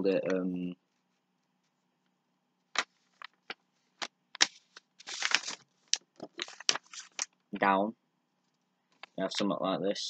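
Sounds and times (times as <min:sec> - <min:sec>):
paper being folded and creased: 0:04.4 - 0:07.4.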